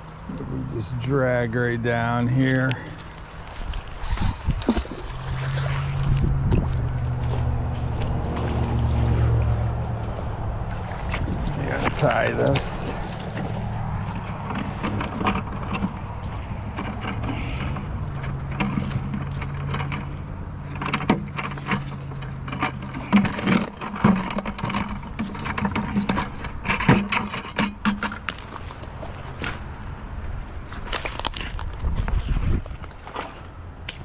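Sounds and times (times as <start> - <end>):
low hum: 0.0 - 32.7
boots crunching through grass and stones: 2.5 - 20.8, 28.2 - 33.5
handling clicks and crackles: 11.1 - 34.0.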